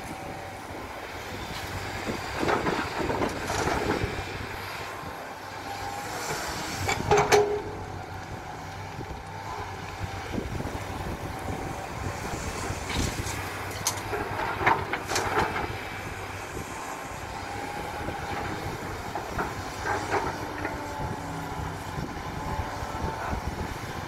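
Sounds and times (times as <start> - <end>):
excavator diesel engine running: 0.0 - 24.0.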